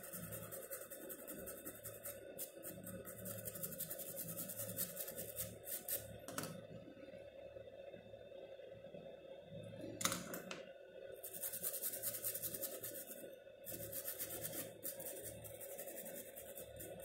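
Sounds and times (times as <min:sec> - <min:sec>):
bristle brush scrubbing circuit board: 0:00.0 - 0:06.1, 0:11.2 - 0:17.0.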